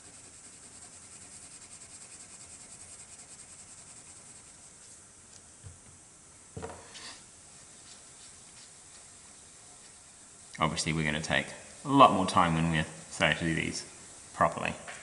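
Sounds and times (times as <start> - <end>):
pencil scratching on paper: 0.0 - 4.9.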